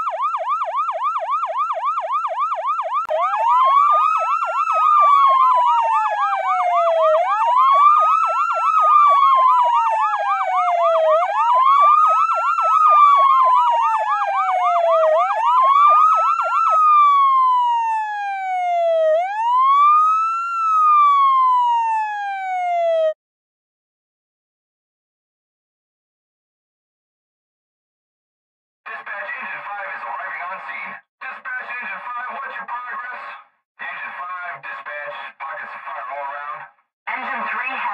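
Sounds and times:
electronic siren wailing: 0:00.0 - 0:23.2
siren yelping warble: 0:00.0 - 0:23.2.

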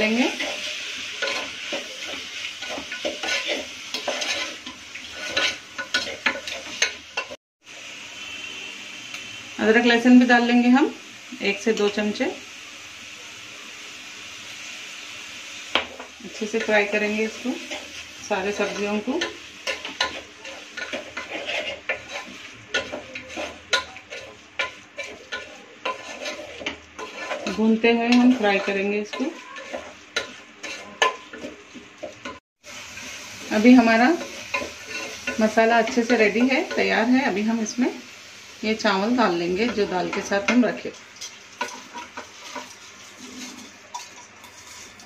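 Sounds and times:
vegetables sizzling in oil: 0:00.0 - 0:45.0
spatula scraping metal pot: 0:00.2 - 0:07.4, 0:17.6 - 0:31.6, 0:41.6 - 0:45.0.

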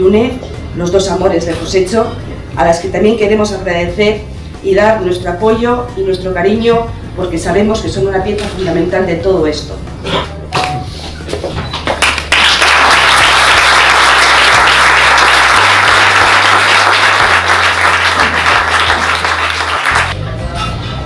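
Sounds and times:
audience applauding: 0:11.9 - 0:20.2.

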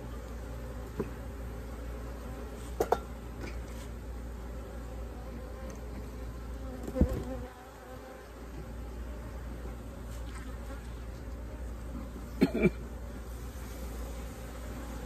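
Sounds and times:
bees buzzing: 0:04.2 - 0:15.0.

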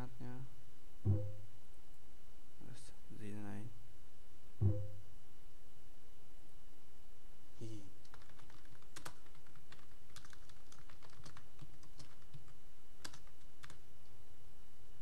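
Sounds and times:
computer keyboard typing: 0:08.0 - 0:13.8.

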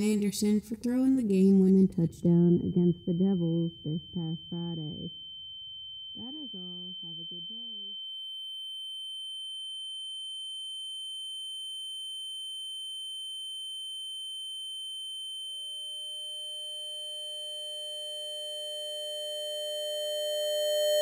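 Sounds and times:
lower electronic tones: 0:02.0 - 0:11.3, 0:15.3 - 0:21.0
high-pitched electronic tone: 0:02.3 - 0:08.0, 0:16.4 - 0:21.0.

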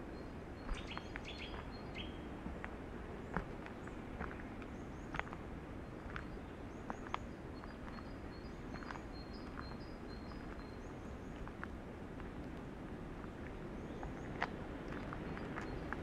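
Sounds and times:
wind rushing through forest: 0:00.0 - 0:16.0
small birds chirping: 0:00.1 - 0:02.3, 0:03.2 - 0:11.6.

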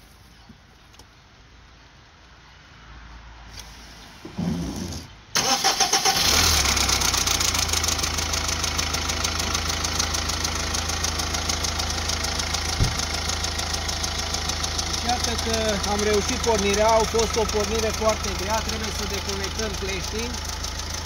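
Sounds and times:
diesel engine starting and idling: 0:04.2 - 0:21.0.

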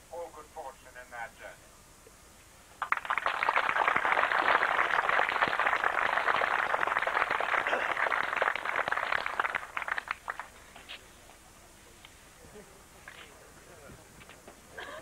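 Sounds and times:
crowd applauding: 0:02.8 - 0:10.6.

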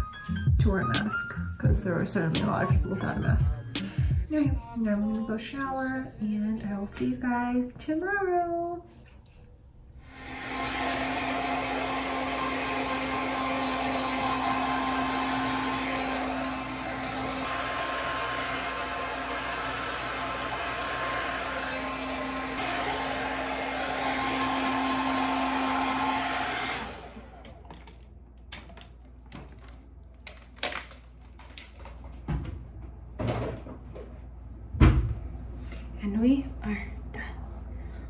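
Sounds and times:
hair dryer blowing: 0:10.0 - 0:27.9.

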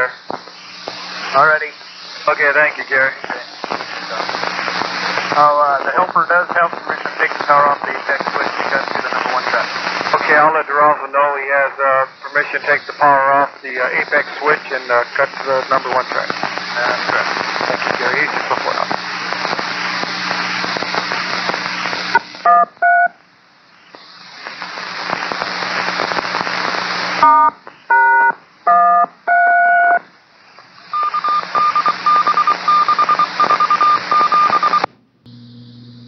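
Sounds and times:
radio static hiss: 0:00.0 - 0:34.9
touch-tone codes: 0:22.5 - 0:23.2, 0:27.2 - 0:30.0, 0:30.9 - 0:34.9.

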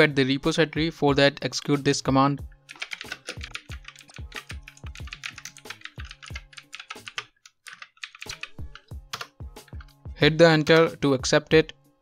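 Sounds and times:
soft background music: 0:00.0 - 0:12.0
rapid computer keyboard typing: 0:02.6 - 0:09.9.

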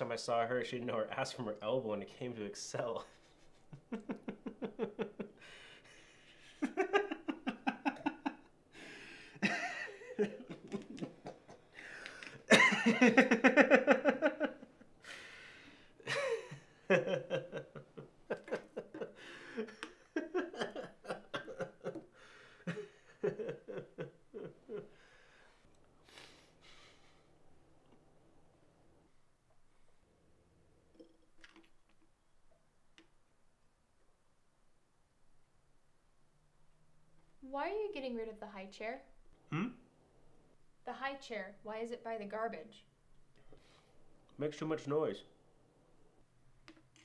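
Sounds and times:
man laughing: 0:02.8 - 0:05.4, 0:06.4 - 0:08.5, 0:09.4 - 0:11.7, 0:12.3 - 0:14.7, 0:16.0 - 0:24.9
breaths: 0:05.4 - 0:06.6, 0:08.7 - 0:09.4, 0:11.7 - 0:12.4, 0:15.0 - 0:16.0, 0:19.1 - 0:19.9, 0:22.0 - 0:23.0, 0:24.9 - 0:27.4, 0:43.4 - 0:44.1.

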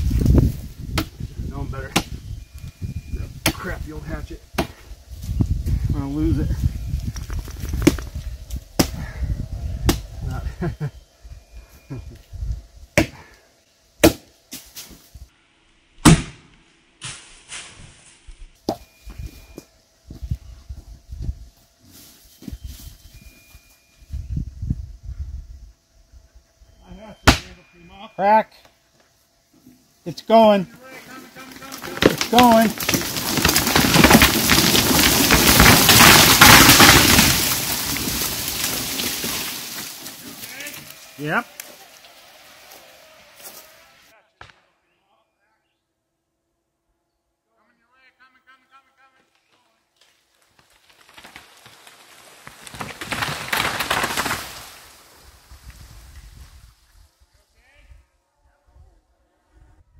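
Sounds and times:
hatchet chopping wood: 0:00.9 - 0:01.2, 0:01.9 - 0:02.2, 0:04.6 - 0:04.8, 0:08.8 - 0:09.0, 0:09.8 - 0:10.0, 0:13.0 - 0:13.2, 0:14.0 - 0:14.3, 0:16.0 - 0:16.6, 0:27.2 - 0:27.5
tree falling with wood cracking: 0:06.7 - 0:09.2, 0:30.8 - 0:42.8, 0:50.0 - 0:56.6.

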